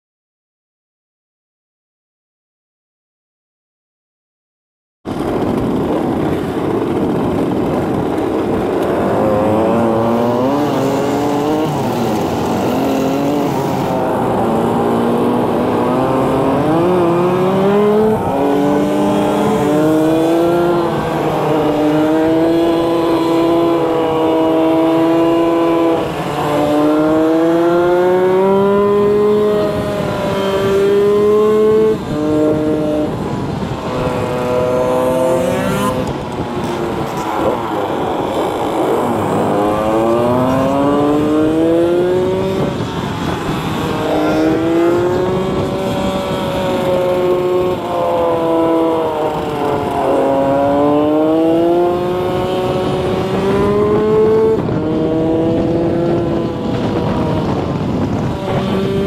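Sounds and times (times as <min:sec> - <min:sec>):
scooter engines accelerating: 0:05.1 - 0:59.0.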